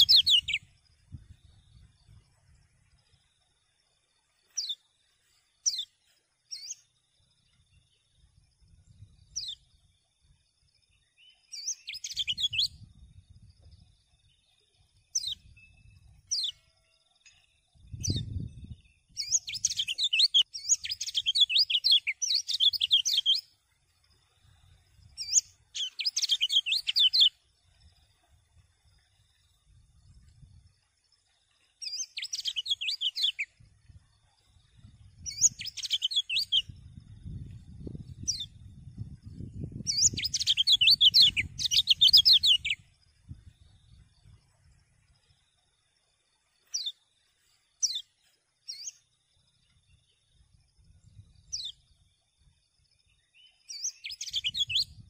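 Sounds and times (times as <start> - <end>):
bird high downward chirps: 0.0 - 2.6, 4.4 - 7.6, 11.1 - 13.8, 15.1 - 23.6, 24.4 - 27.5, 31.8 - 33.6, 34.8 - 38.6, 39.4 - 44.6, 46.6 - 49.0, 53.1 - 55.0
bird fast twittering song: 0.0 - 55.0.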